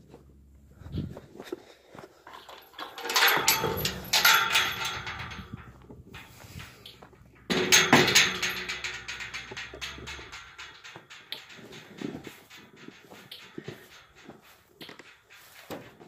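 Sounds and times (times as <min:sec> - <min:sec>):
metal gate rattling and clanking: 0:02.3 - 0:16.0.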